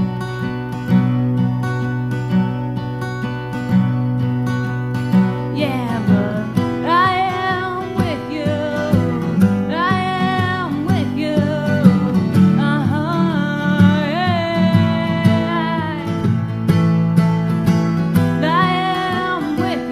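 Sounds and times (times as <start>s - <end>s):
strummed acoustic guitar: 0.0s - 19.9s
person singing: 5.5s - 16.2s, 18.4s - 19.9s.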